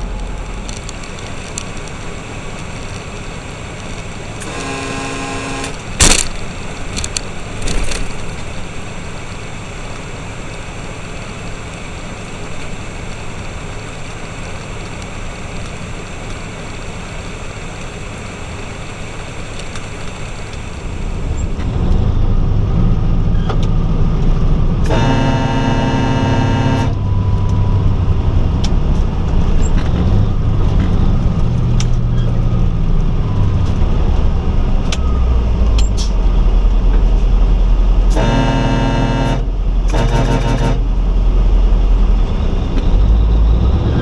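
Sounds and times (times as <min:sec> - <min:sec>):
truck engine and road noise: 0:00.0 - 0:44.0
truck horn: 0:04.4 - 0:05.9, 0:24.8 - 0:27.1, 0:38.0 - 0:41.2.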